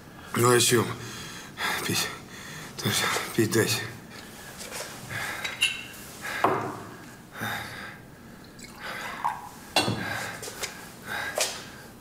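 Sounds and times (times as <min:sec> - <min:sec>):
man gasping breaths: 0:06.2 - 0:09.2, 0:09.8 - 0:12.0.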